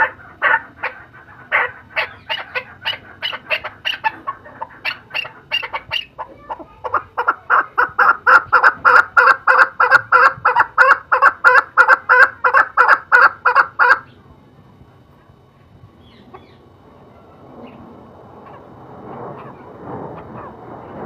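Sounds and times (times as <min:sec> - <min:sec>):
partridge clucking calls: 0:00.0 - 0:14.2.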